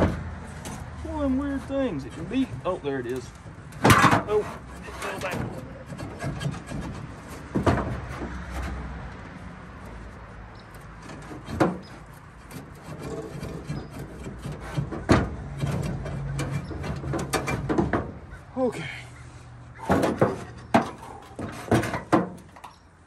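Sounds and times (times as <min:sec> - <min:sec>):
metal grating and scraping: 0:00.0 - 0:18.5, 0:19.2 - 0:22.9
sharp metal clunks: 0:03.7 - 0:08.8, 0:19.8 - 0:22.8.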